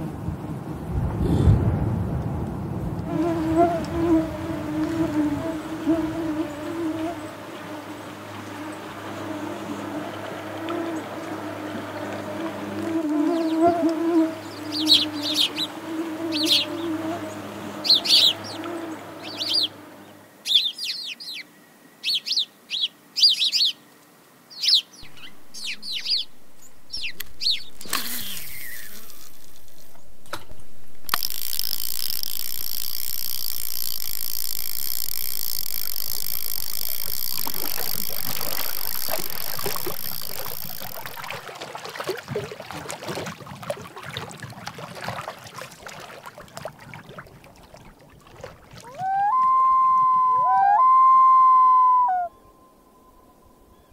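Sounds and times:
canoe paddles splashing: 0:02.2 - 0:20.4, 0:25.0 - 0:50.3
mosquito whine: 0:03.1 - 0:20.2, 0:31.1 - 0:41.3
small bird chirping: 0:14.4 - 0:23.8, 0:24.5 - 0:29.3
high-pitched hiss with ringing tones: 0:31.1 - 0:41.3.

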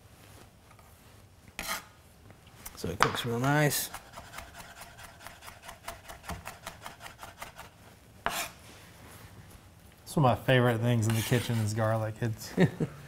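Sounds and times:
knife mincing on cutting board: 0:01.6 - 0:01.9, 0:03.4 - 0:08.6.

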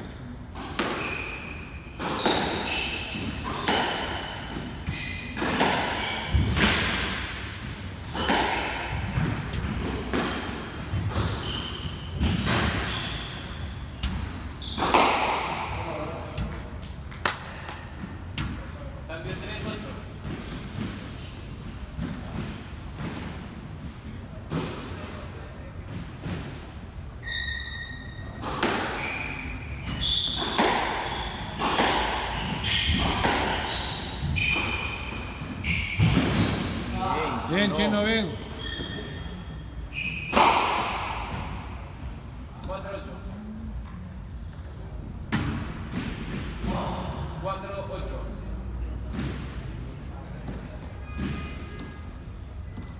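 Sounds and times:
sneakers squeaking: 0:00.1 - 0:16.7, 0:27.1 - 0:47.4, 0:50.4 - 0:52.9
squash ball hits: 0:00.5 - 0:11.4, 0:28.4 - 0:36.8, 0:40.2 - 0:41.8, 0:45.3 - 0:47.1.

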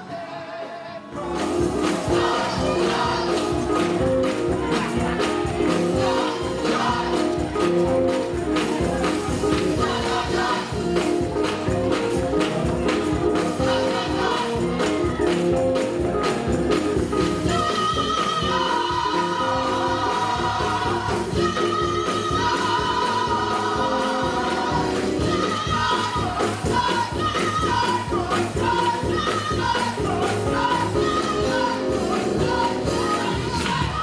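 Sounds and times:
gospel choir singing: 0:00.0 - 0:08.2, 0:09.1 - 0:11.5, 0:13.3 - 0:15.6, 0:17.4 - 0:34.0
instrumental accompaniment: 0:00.8 - 0:34.0
percussive beat: 0:01.2 - 0:34.0.

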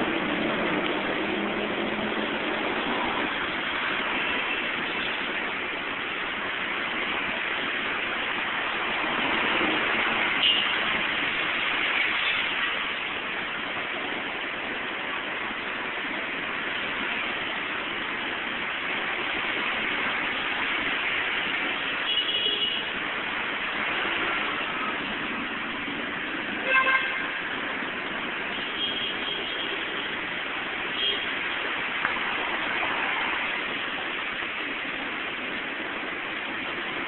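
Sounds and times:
heavy rain hissing: 0:00.0 - 0:37.0
tyres on wet road: 0:00.0 - 0:37.0
car horn honk: 0:26.6 - 0:27.4.

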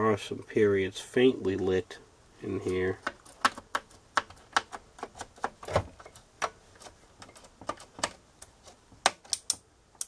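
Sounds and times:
calculator keys clicking: 0:03.0 - 0:08.2.

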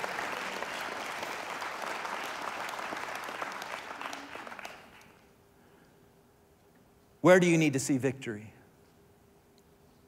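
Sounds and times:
crowd applauding: 0:00.0 - 0:05.3.

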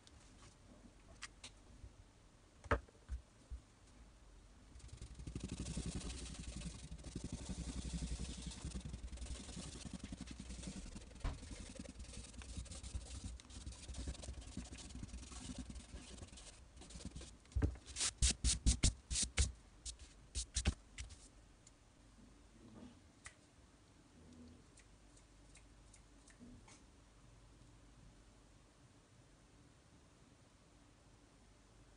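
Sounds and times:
pen scratching on paper: 0:04.8 - 0:19.5
hand swiping across paper: 0:17.9 - 0:21.2.

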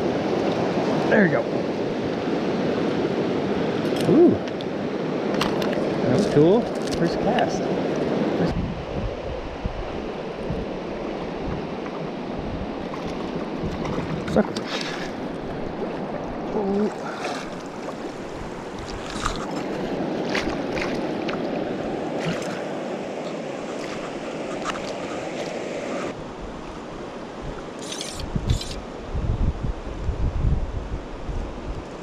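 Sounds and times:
wind buffeting microphone: 0:07.6 - 0:32.0
river water rushing: 0:09.9 - 0:29.1.

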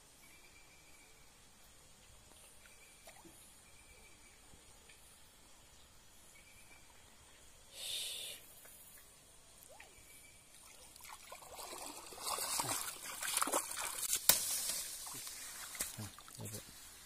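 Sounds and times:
water splashing from wading: 0:09.6 - 0:16.5.

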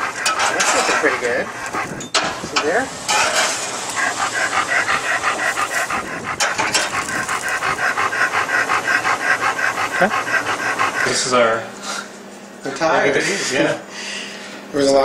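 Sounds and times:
dog panting: 0:00.0 - 0:12.1.

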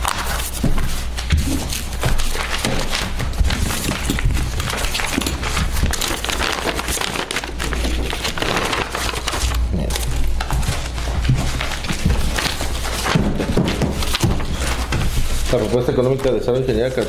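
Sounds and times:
paper rustling and crinkling: 0:00.0 - 0:17.0.

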